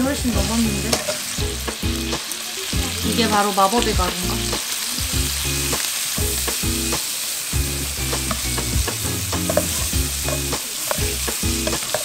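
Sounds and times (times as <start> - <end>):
food sizzling in oil: 0.0 - 12.0
spatula scraping a pan: 9.4 - 12.0.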